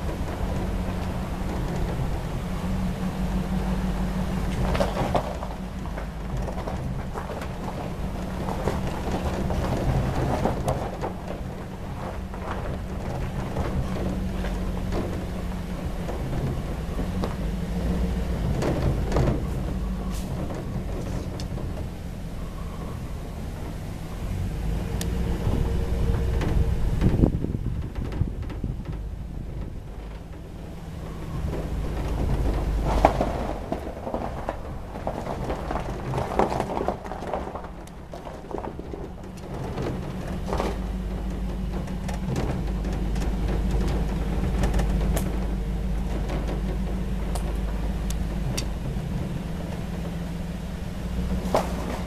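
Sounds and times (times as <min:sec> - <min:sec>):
knocks and rattles: 0:00.0 - 0:52.0
vehicle engine hum: 0:00.0 - 0:52.0.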